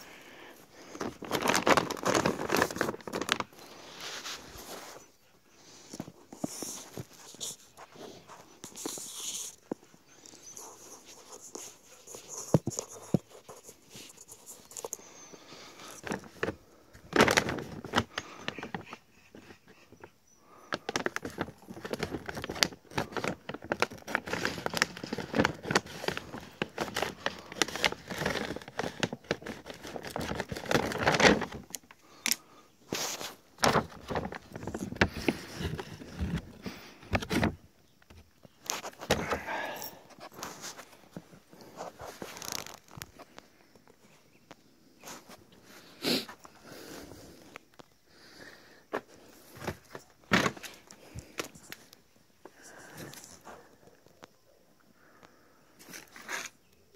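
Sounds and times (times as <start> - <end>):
plastic bag crinkling: 0.7 - 5.0, 15.7 - 18.8, 20.8 - 36.6, 38.6 - 43.3.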